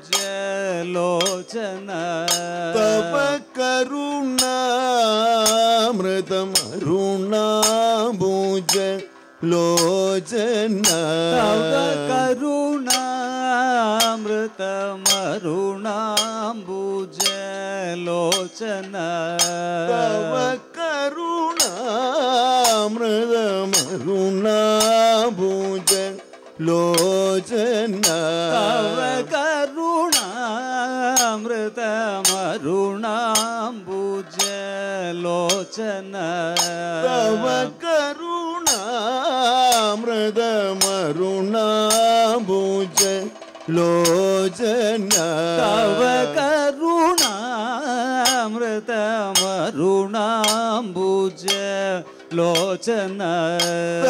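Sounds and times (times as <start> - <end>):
man singing ornamented melody: 0.0 - 54.0
metallic time-keeping strikes: 1.2 - 3.7, 7.6 - 17.6, 18.2 - 20.7, 21.5 - 31.5, 36.6 - 37.8, 40.7 - 47.5.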